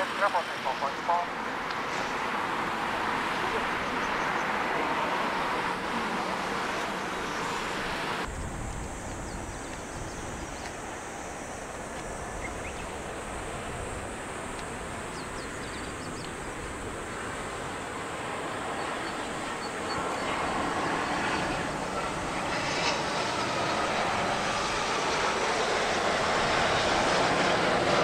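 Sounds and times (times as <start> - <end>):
jet aircraft noise: 0.0 - 28.0.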